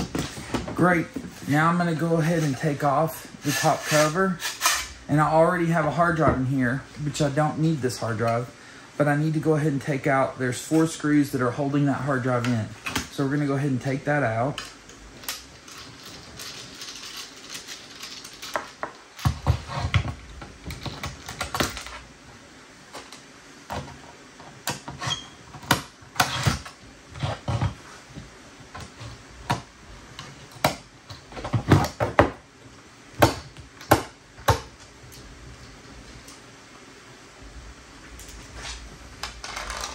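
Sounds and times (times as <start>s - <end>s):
metal scraping on metal: 3.4s - 5.0s.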